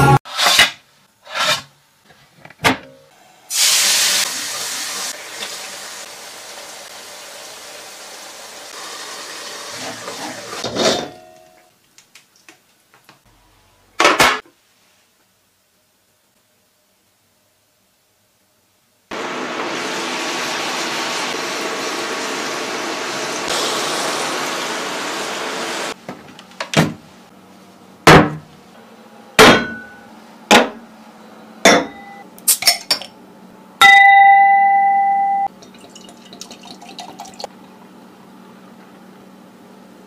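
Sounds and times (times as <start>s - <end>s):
glass clinks and knocks: 31.7s - 32.8s
beer pouring into glass: 35.5s - 37.6s.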